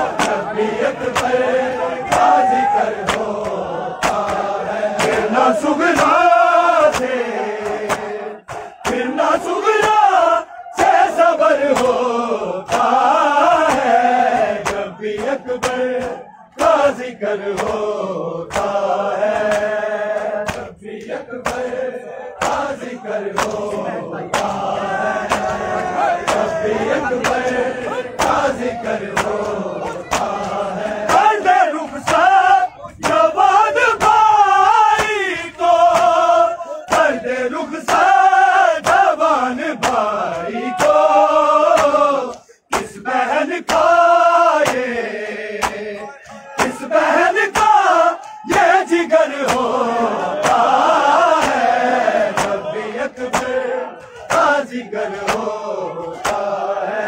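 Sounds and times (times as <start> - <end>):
hands slapping chests: 0.0 - 10.2, 11.7 - 12.1, 12.7 - 17.9, 18.5 - 21.8, 22.4 - 26.6, 27.2 - 31.4, 32.0 - 32.4, 35.0 - 37.2, 37.9 - 44.0, 44.6 - 44.9, 45.6 - 49.8, 50.4 - 54.6, 55.2 - 55.6, 56.2 - 56.6
men chanting in unison: 0.0 - 57.0.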